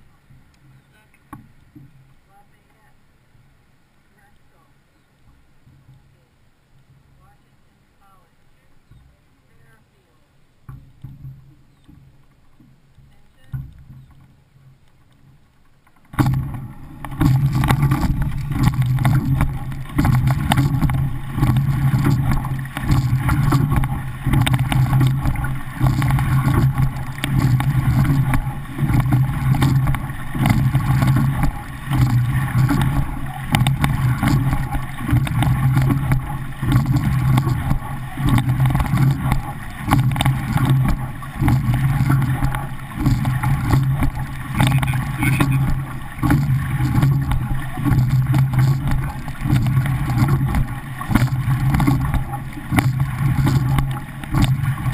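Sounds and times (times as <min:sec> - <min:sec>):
water rushing along hull: 0:00.0 - 0:54.9
wind on microphone: 0:16.2 - 0:54.9.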